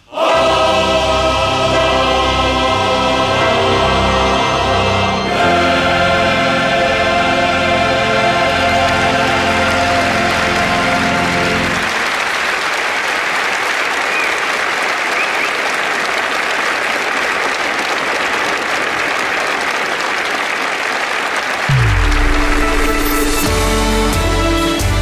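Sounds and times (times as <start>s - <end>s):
male choir singing chord: 0.0s - 12.0s
audience applauding: 5.5s - 23.7s
music with low falling note: 21.7s - 25.0s.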